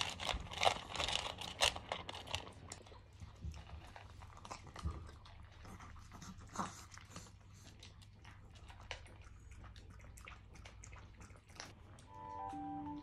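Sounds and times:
soft piano music: 0:12.1 - 0:13.0.

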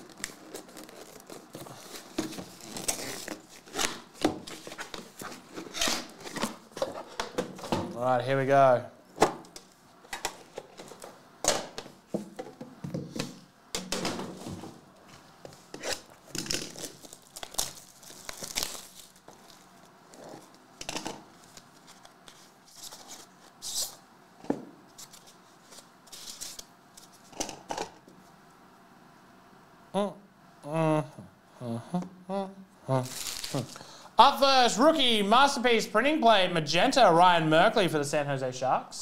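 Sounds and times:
wrapper rustling and tearing: 0:00.0 - 0:07.1, 0:15.8 - 0:20.6, 0:33.0 - 0:33.9.

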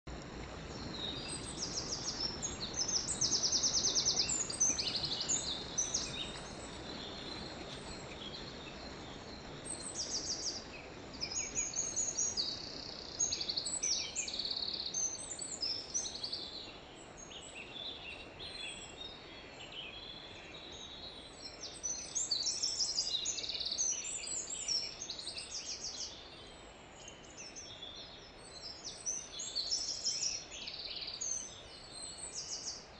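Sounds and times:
faint stream rushing: 0:00.1 - 0:32.9
birds chirping and singing: 0:00.7 - 0:26.1.

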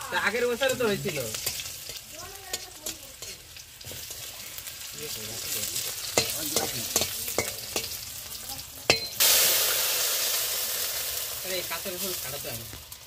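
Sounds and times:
food frying in hot oil: 0:00.0 - 0:13.0
loud sizzle: 0:00.0 - 0:13.0
utensil knocking against pan: 0:08.9 - 0:09.2.

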